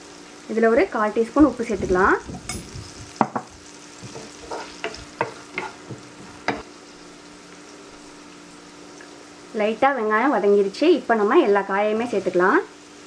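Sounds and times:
onion sizzling in oil: 0.0s - 13.0s
spatula knocking against pan: 2.5s - 6.6s.

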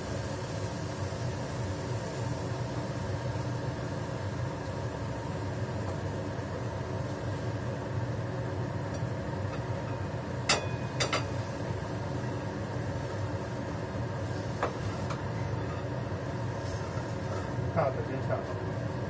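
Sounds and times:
steady mechanical hum: 0.0s - 19.0s
metal spatula clanking on pan: 10.5s - 11.3s.

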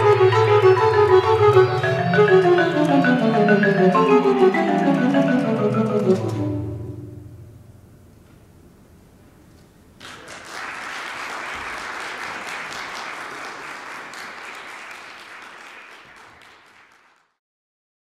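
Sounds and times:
audience applauding: 10.0s - 17.4s.

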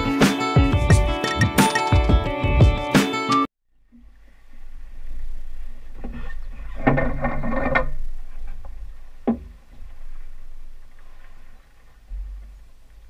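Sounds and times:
motorboat engine rumble: 3.8s - 13.0s
rustling and knocking: 4.9s - 13.0s.

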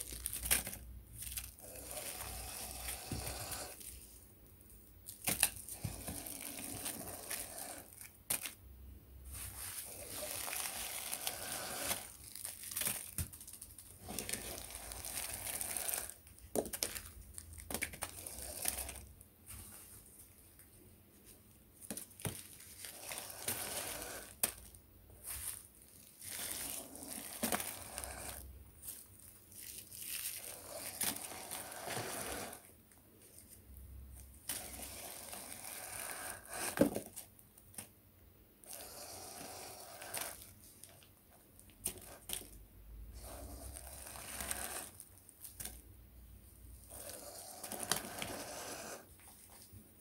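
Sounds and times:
plastic bags crinkling: 0.0s - 4.2s, 5.0s - 8.6s, 9.3s - 20.6s, 21.8s - 35.7s.

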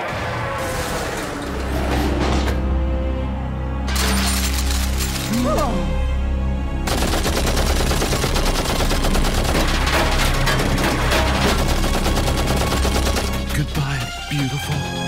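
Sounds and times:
shots hitting metal van: 9.0s - 13.0s.

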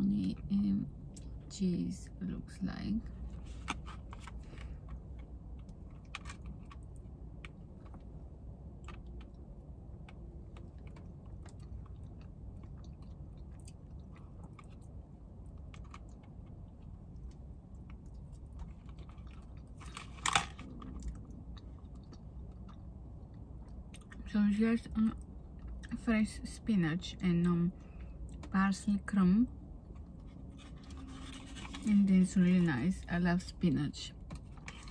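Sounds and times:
close-up chewing: 3.2s - 24.3s.

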